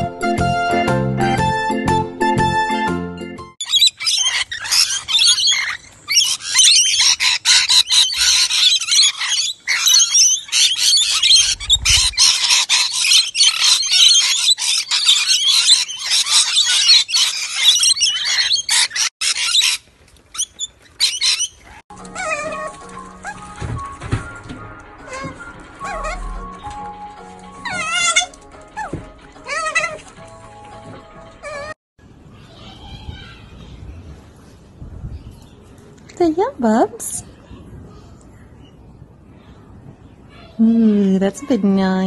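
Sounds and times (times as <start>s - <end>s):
lorikeets screeching and chattering: 3.6s - 23.6s, 25.0s - 26.8s, 27.6s - 30.0s.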